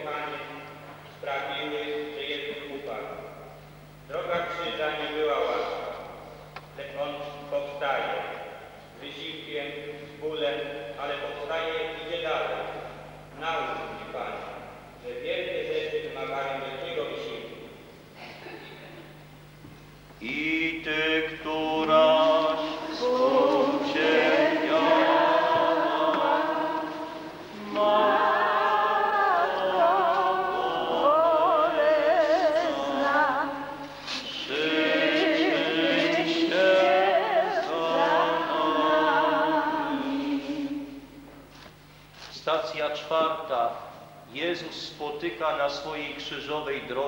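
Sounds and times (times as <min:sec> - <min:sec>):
congregation singing a hymn: 0:20.2 - 0:41.0.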